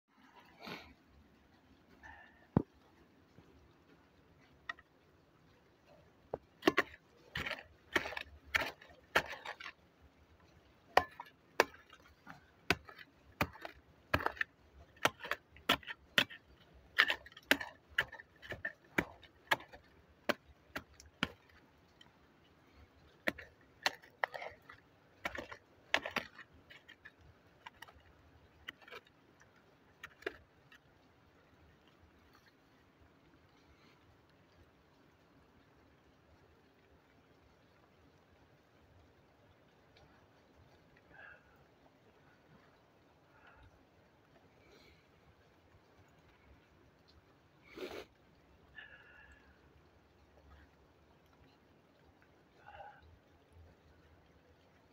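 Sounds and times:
digging in hard soil: 5.9s - 31.0s.

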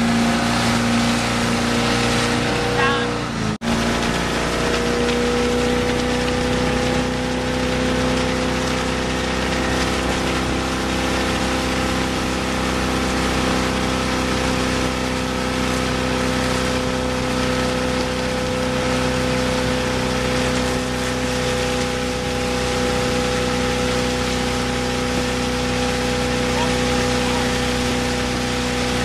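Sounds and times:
boat engine running: 0.0s - 29.0s.

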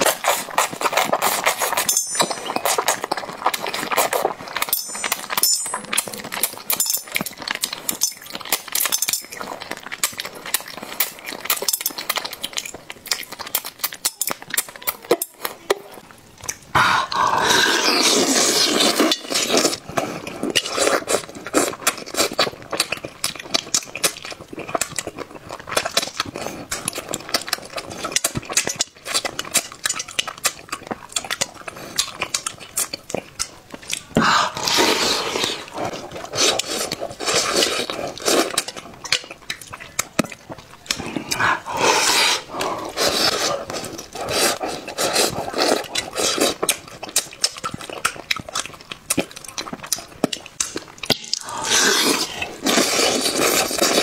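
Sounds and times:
wet chewing and lip smacks: 16.3s - 17.3s, 18.3s - 54.0s
loud slurp: 16.8s - 21.7s, 34.1s - 38.6s, 41.0s - 46.6s, 51.3s - 54.0s.

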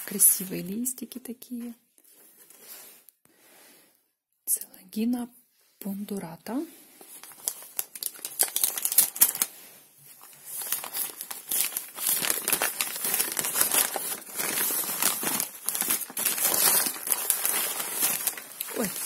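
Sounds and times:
paper crinkling and rustling: 7.0s - 19.0s.

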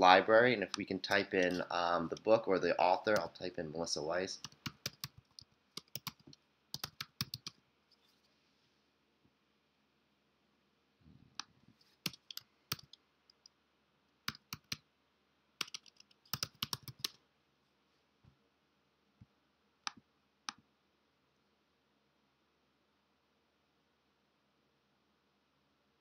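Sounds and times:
keyboard keys tapping: 4.4s - 7.6s, 12.0s - 13.0s, 14.3s - 14.8s, 15.6s - 17.2s.

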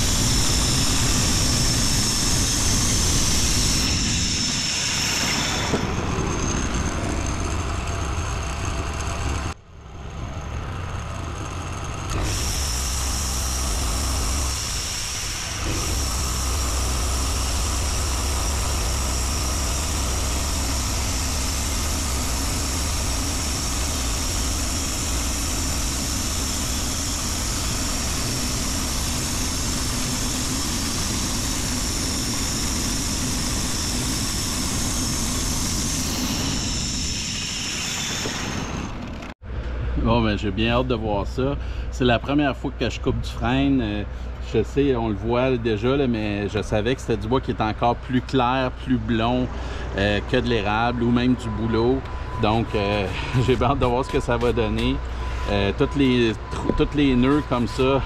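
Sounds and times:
saw blade cutting log: 0.0s - 9.6s, 11.2s - 39.3s, 50.0s - 58.0s
sawmill engine droning: 0.0s - 58.0s.

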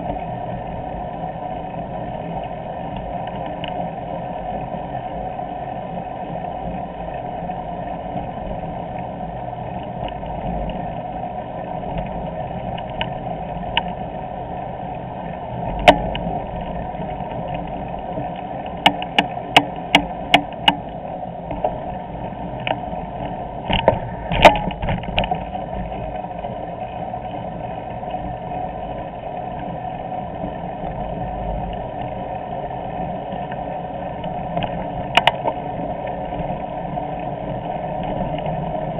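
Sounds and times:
bicycle rolling on pavement: 0.0s - 38.9s
bicycle knocking over bumps: 15.6s - 26.5s.

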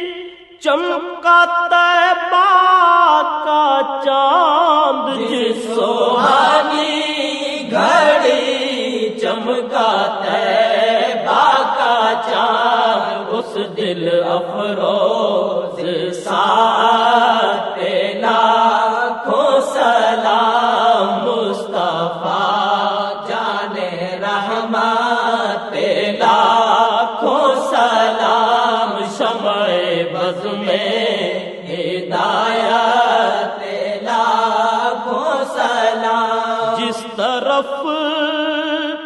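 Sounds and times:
lower voices singing: 2.0s - 39.0s.

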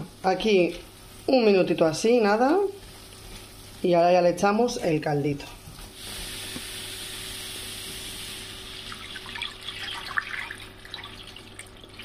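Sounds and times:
broth pouring into hot pan: 5.9s - 12.0s.

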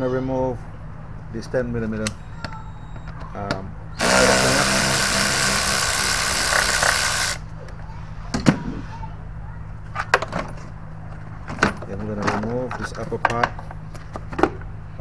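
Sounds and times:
power ratchet spinning: 4.0s - 7.5s.

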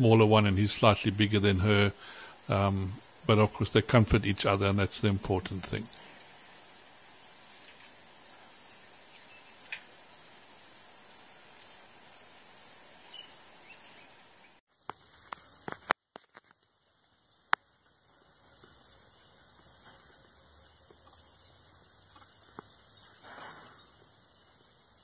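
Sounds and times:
insects chirring: 0.0s - 15.1s.

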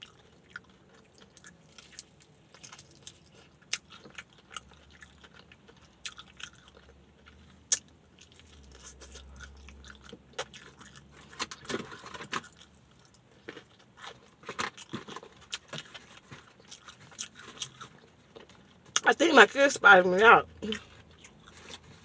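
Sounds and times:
chewing crispy fried chicken: 0.0s - 19.2s, 20.5s - 22.0s.

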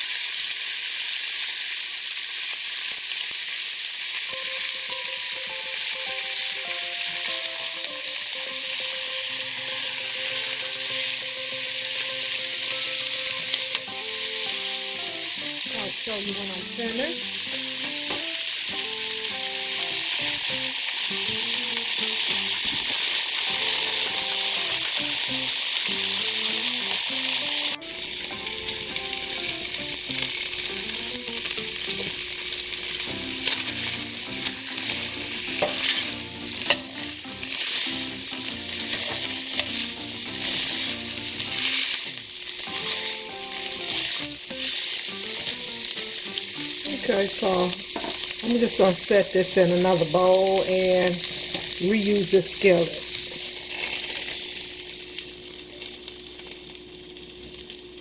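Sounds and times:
meat sizzling in oil: 0.0s - 58.0s
fork scraping meat in pan: 35.6s - 38.0s, 38.8s - 41.0s, 53.4s - 54.6s.

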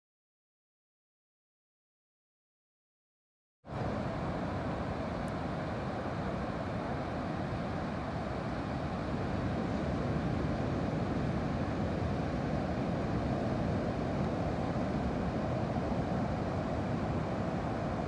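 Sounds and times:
ocean waves breaking on reef: 3.7s - 18.0s.

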